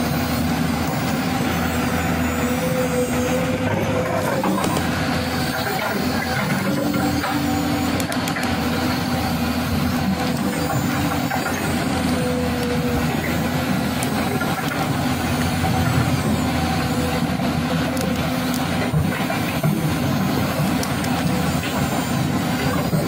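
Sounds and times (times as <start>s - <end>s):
engine running: 0.0s - 23.0s.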